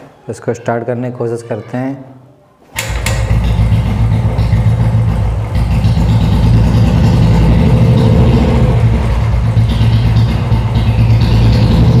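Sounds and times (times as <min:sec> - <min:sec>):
motorcycle engine running: 0:02.9 - 0:12.0.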